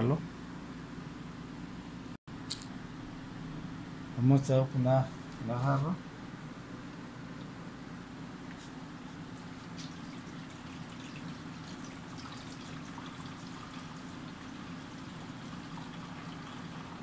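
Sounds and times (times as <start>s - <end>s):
steady low hum: 0.0s - 17.0s
water trickling into tank: 9.5s - 17.0s.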